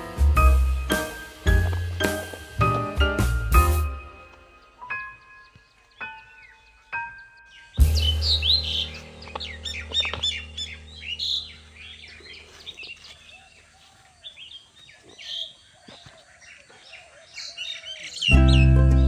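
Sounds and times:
low music chord: 0.0s - 13.0s, 18.3s - 19.0s
small birds chirping: 0.0s - 19.0s.

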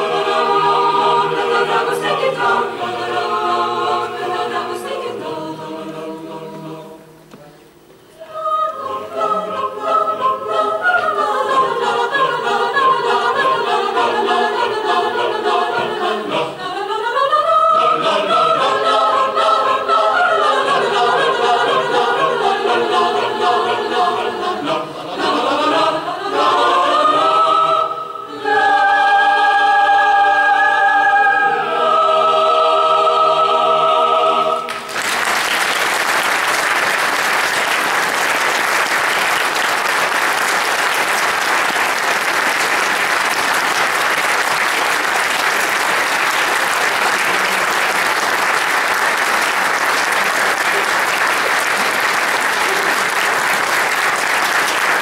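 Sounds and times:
choir singing held chords: 0.0s - 7.3s, 8.0s - 35.2s
audience applause: 34.7s - 55.0s.

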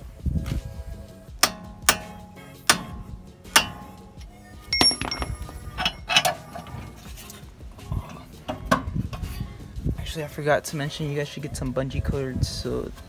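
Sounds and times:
hammer striking steel punch: 4.8s - 5.6s
light metallic clinks: 4.8s - 6.1s.

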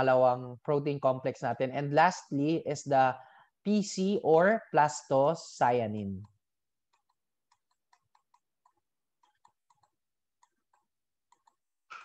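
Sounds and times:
stylus tapping on tablet: 6.2s - 12.0s.

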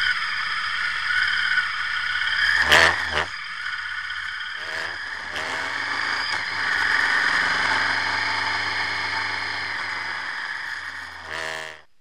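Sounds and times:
motorcycle engine running: 4.6s - 11.8s.

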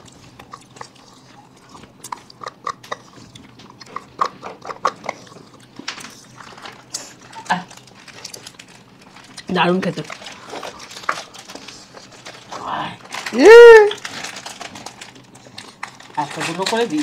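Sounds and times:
licking and slurping: 0.0s - 13.3s.

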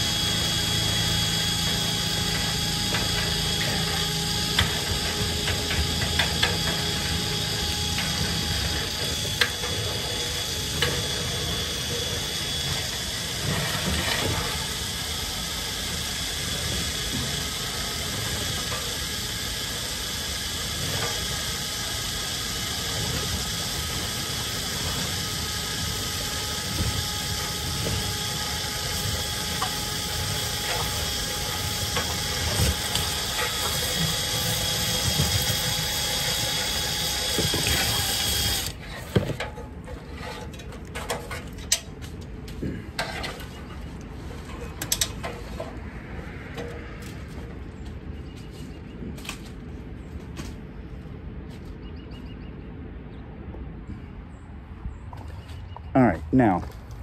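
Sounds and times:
drill spinning brush in duct: 0.0s - 41.6s.

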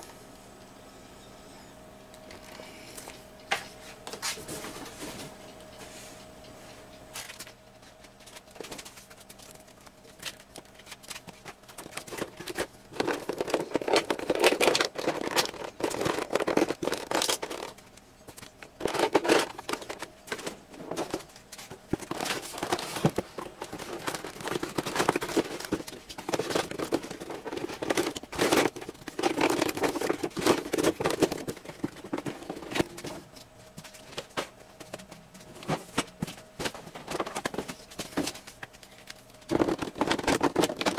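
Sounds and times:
plastic packaging crinkling: 8.2s - 33.2s, 37.0s - 40.9s.

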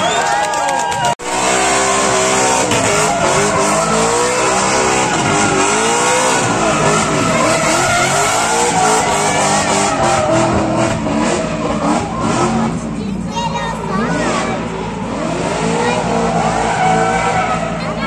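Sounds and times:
car engine revving hard: 1.2s - 18.0s
spinning tyres hissing: 1.5s - 13.1s.

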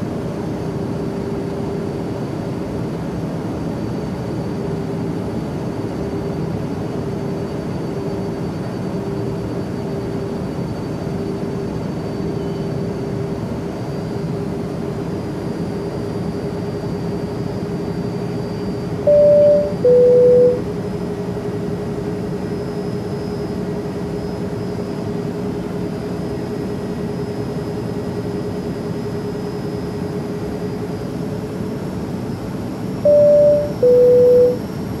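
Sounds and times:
airliner cabin drone: 0.0s - 35.0s
two-tone cabin chime: 19.1s - 20.6s, 33.1s - 34.6s.

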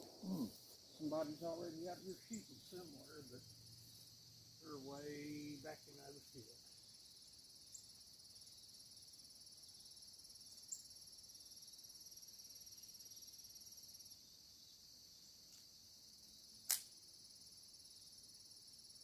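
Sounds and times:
insects chirring: 0.0s - 19.0s
sharp crack: 16.7s - 17.0s.

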